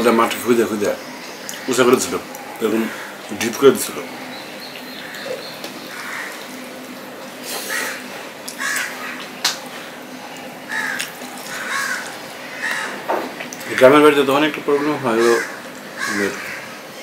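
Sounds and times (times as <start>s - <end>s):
harsh bird calls: 0.0s - 17.0s
chewing: 10.2s - 13.7s.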